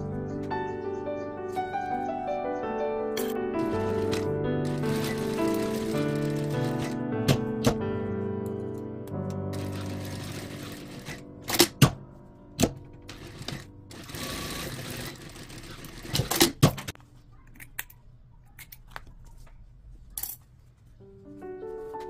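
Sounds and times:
background music: 0.0 - 16.3.

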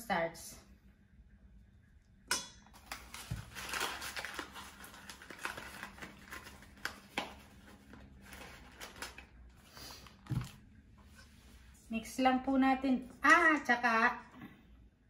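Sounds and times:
cardboard box crinkling: 3.0 - 7.1.

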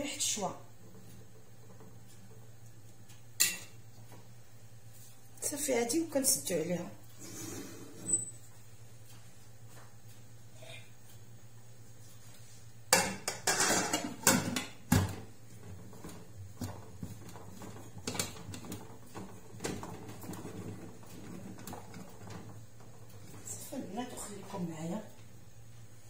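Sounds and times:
metal lid clanking on pot: 13.0 - 14.8.

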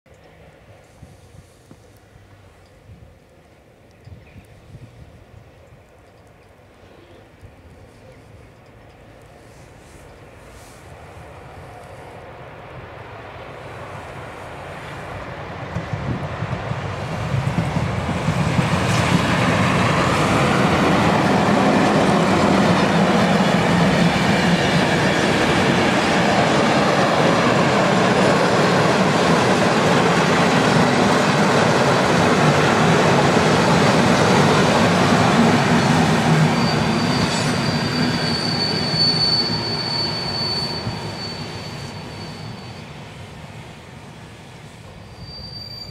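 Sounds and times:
train wheels on rails: 0.1 - 45.9
high squeal: 35.6 - 43.2, 44.9 - 45.9.

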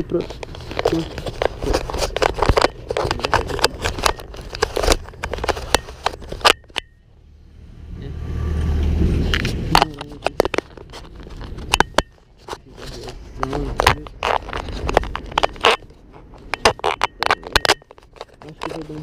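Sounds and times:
camera handling knocks and scrapes: 0.2 - 6.9, 9.3 - 19.0
vehicle passing rumble: 7.0 - 15.3.

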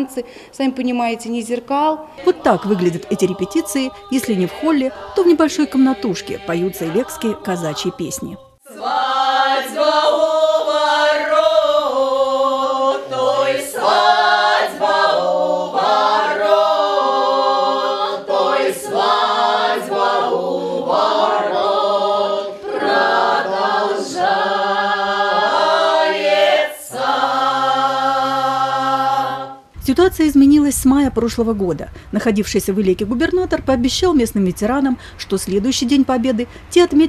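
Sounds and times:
group singing folk song unaccompanied: 2.0 - 29.8.

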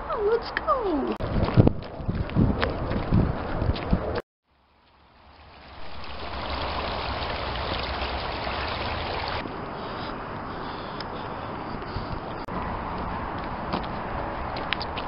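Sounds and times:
creek water over rocks: 4.5 - 10.6.

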